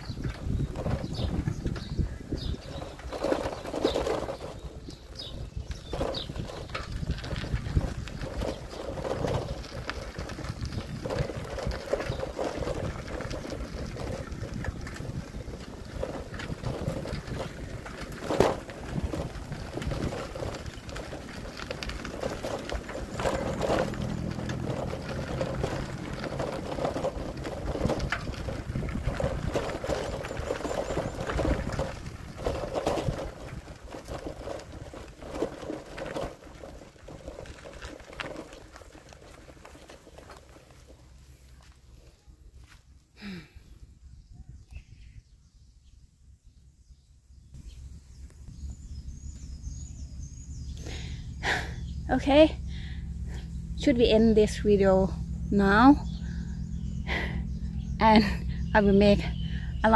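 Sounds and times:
wind on microphone: 0:00.0 - 0:38.6, 0:44.0 - 0:46.6
bike rattles and clicks: 0:00.0 - 0:45.2, 0:46.4 - 0:59.9
bicycle tyres on concrete and dirt: 0:00.0 - 0:59.9
low hum: 0:47.9 - 0:59.9.

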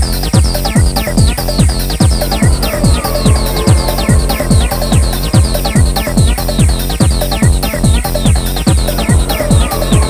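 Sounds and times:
heavy kick drum: 0:00.0 - 0:10.0
downward-sliding synth figures: 0:02.2 - 0:06.8.

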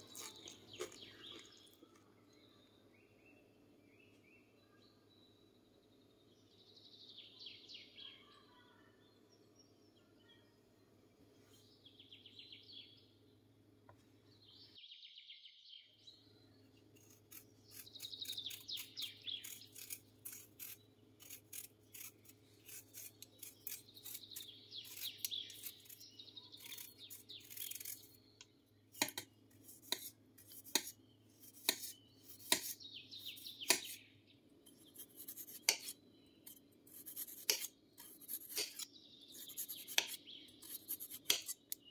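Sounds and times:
blade peeling potato: 0:17.0 - 0:34.0, 0:34.7 - 0:41.9
knife slicing on marble board: 0:35.2 - 0:35.9, 0:36.9 - 0:38.9.

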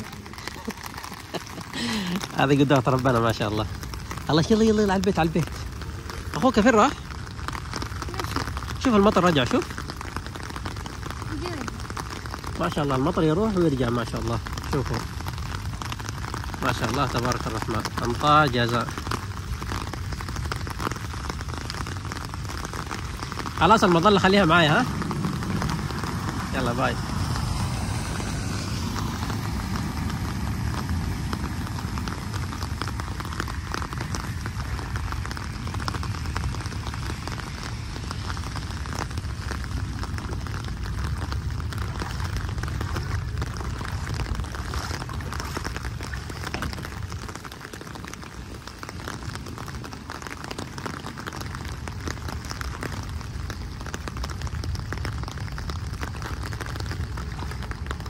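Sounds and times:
low rumble: 0:00.0 - 0:58.0
steady rain falling: 0:00.0 - 0:58.0.

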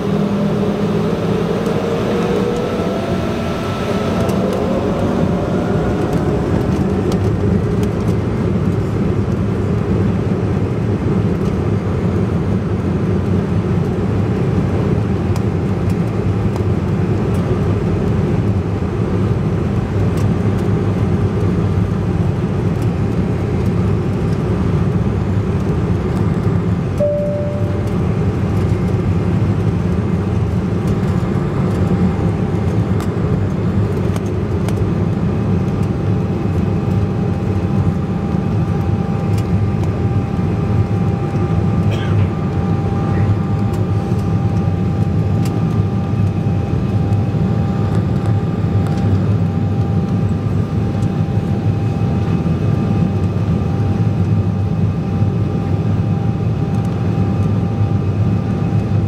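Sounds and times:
engine whine: 0:00.0 - 0:59.0
jet engines low rumble: 0:00.0 - 0:59.0
short tone: 0:27.0 - 0:28.3.

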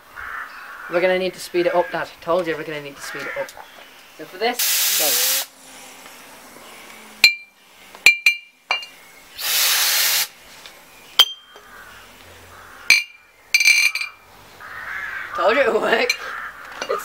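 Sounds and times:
compressed air blow gun blast: 0:04.6 - 0:06.2, 0:09.4 - 0:10.4.

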